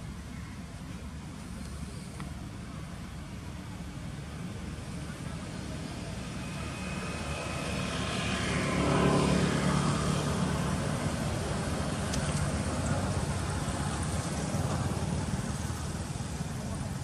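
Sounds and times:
passing engine: 3.9s - 17.0s.

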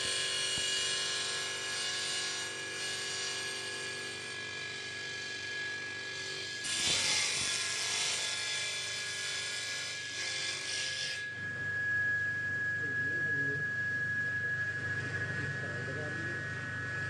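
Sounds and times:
saw blade cutting wood: 0.0s - 11.3s
table saw whine: 0.0s - 17.0s.

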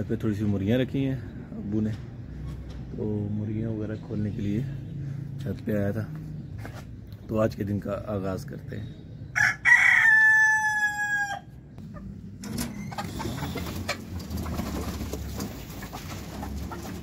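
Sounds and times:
rooster crowing: 9.4s - 11.6s
chickens clucking: 10.3s - 17.0s.

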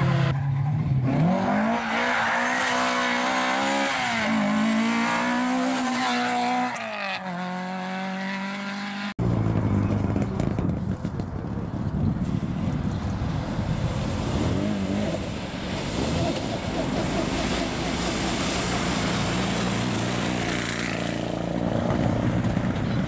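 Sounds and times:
rally car engine revving: 0.0s - 11.1s
rough rally car engine: 0.0s - 23.0s.

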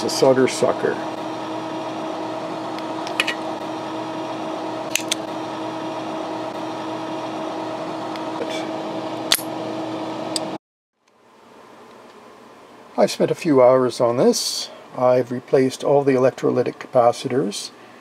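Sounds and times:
steady mechanical hum: 0.0s - 18.0s
desoldering pump clicks: 4.9s - 5.2s.

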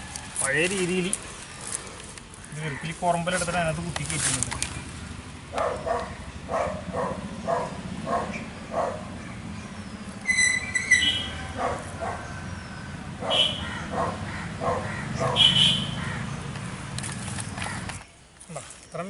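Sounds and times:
dog barking: 5.6s - 9.1s, 11.5s - 12.3s, 13.2s - 15.6s.

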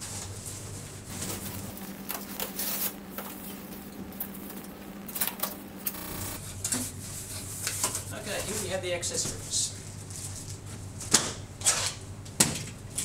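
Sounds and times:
cardboard rustling and scraping: 0.0s - 3.9s.

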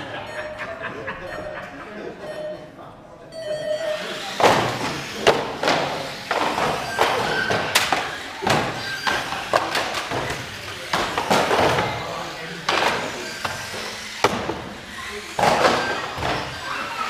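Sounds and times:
model cars racing: 3.9s - 17.0s
cars knocking against boards: 4.4s - 16.7s.

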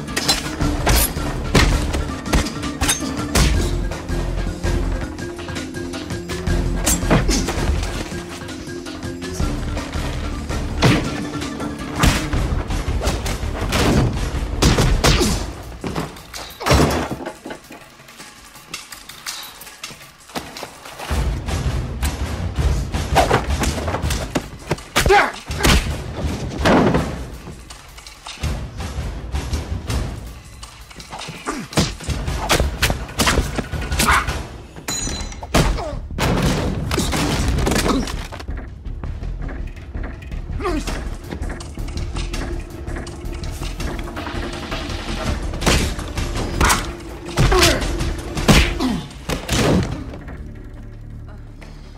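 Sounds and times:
tense film score: 0.0s - 51.9s
punches and thuds: 10.8s - 11.2s, 12.0s - 17.2s, 46.6s - 50.2s.

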